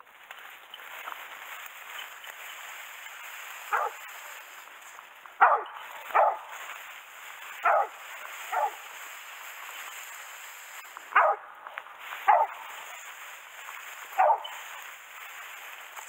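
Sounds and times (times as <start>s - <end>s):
dog barking: 3.7s - 4.0s, 5.4s - 6.6s, 7.5s - 8.8s, 11.1s - 11.6s, 12.2s - 12.9s, 14.1s - 14.7s.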